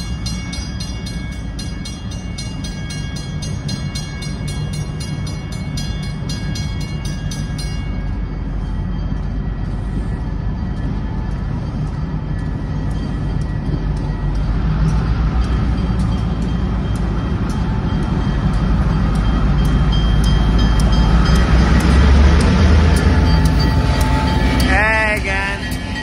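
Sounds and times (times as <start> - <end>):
diesel locomotive engine rumble: 0.0 - 26.0
grade-crossing bell ringing: 0.0 - 26.0.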